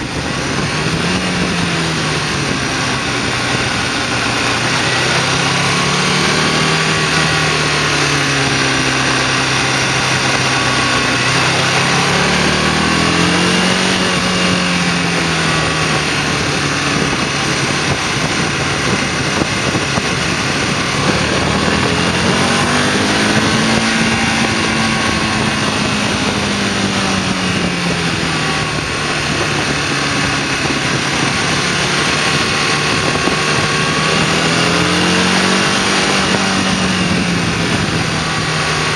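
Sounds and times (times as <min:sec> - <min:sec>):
motorcycle engine revving: 0:00.0 - 0:38.9
wind and road noise: 0:00.0 - 0:38.9.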